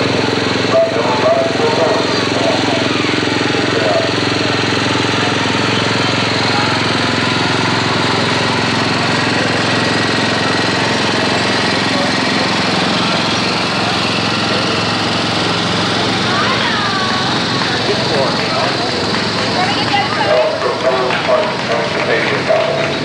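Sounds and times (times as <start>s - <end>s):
mechanical drone with buzzing hum: 0.0s - 23.0s.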